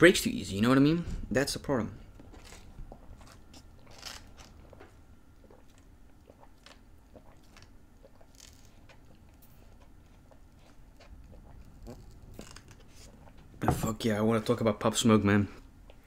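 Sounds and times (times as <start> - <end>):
swallowing: 5.4 - 13.4.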